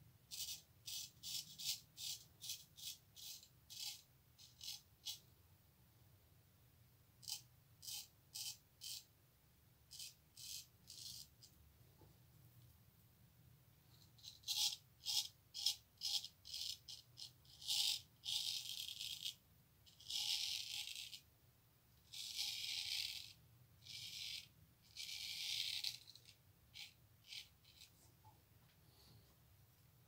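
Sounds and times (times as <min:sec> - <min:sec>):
straight razor rasping on stubble: 0:00.3 - 0:05.2, 0:07.2 - 0:09.1.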